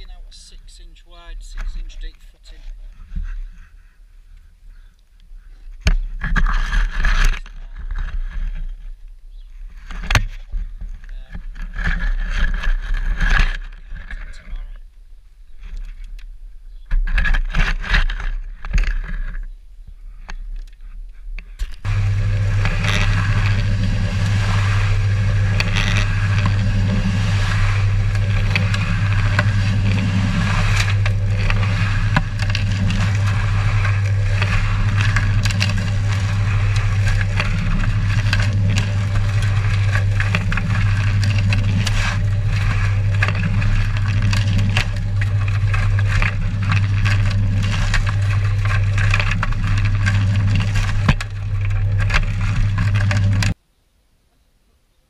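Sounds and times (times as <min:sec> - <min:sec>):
cement mixer humming: 0:21.6 - 0:53.6
shovel scraping: 0:21.8 - 0:53.6
spade scraping into soil: 0:21.8 - 0:53.6.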